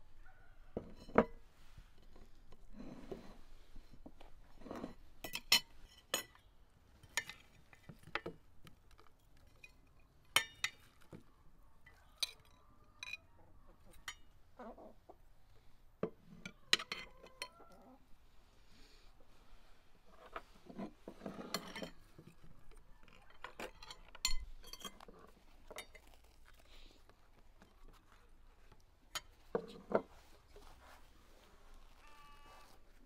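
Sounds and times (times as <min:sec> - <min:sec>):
cutlery clinking against plates: 0:04.8 - 0:06.4, 0:20.7 - 0:22.4, 0:23.1 - 0:25.1.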